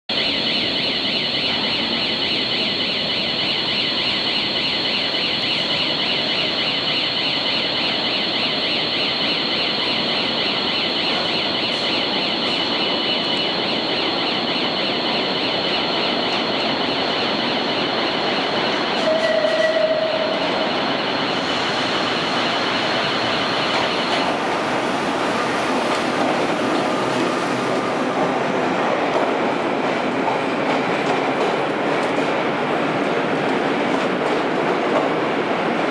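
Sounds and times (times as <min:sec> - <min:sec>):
subway train rumbling: 0:00.1 - 0:35.9
high-pitched wheel squeal: 0:18.9 - 0:20.8.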